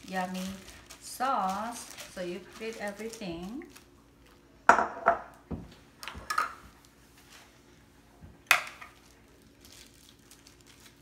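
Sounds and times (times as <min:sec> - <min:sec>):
wet rustles of cabbage leaves: 0:00.0 - 0:04.4, 0:08.9 - 0:11.0.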